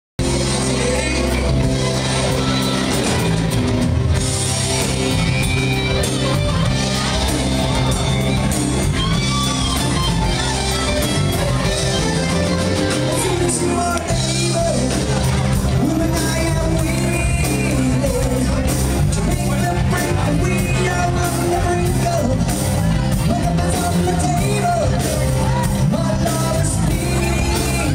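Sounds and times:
person singing into a microphone: 0.2s - 3.5s, 11.9s - 27.9s
drums: 0.2s - 27.9s
electric guitars: 0.2s - 27.9s
keyboard: 0.2s - 27.9s.

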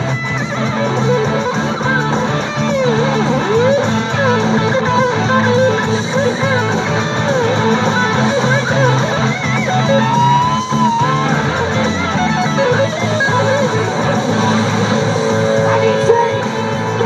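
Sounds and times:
electric guitar lead with bends: 0.0s - 17.0s
sustained low notes: 0.0s - 17.0s.

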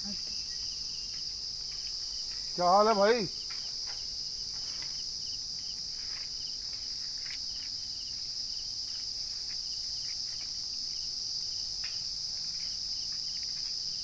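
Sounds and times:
insects chirring drone: 0.0s - 14.0s.

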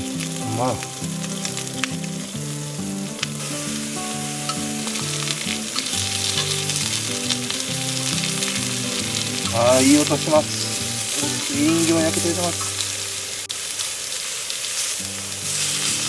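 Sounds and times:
food sizzling on a griddle: 0.0s - 16.0s.

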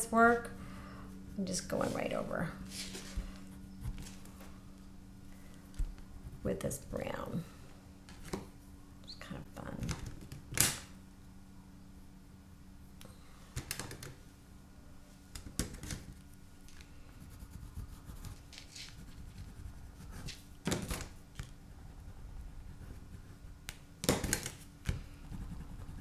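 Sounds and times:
pastel scratching on paper: 17.2s - 20.5s, 25.2s - 26.0s.

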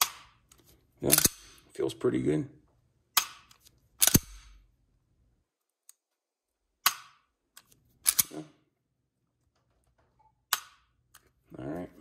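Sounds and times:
pistol trigger clicks: 3.2s - 4.6s.

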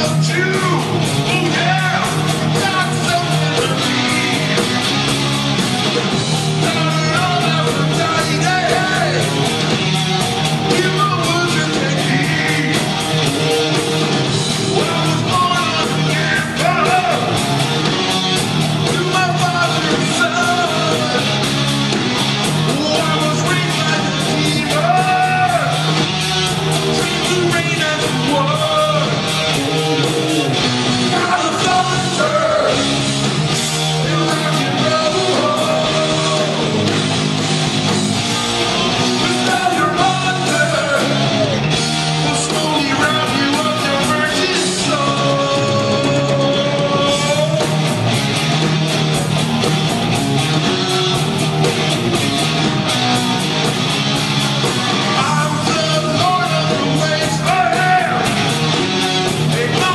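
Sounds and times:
person singing: 0.0s - 4.8s, 6.6s - 9.4s, 10.7s - 13.0s, 14.7s - 17.4s, 22.7s - 33.0s, 34.0s - 37.0s, 38.3s - 47.9s, 54.8s - 58.5s, 59.5s - 59.9s
distorted electric guitars: 0.0s - 59.9s
drums: 0.0s - 59.9s.

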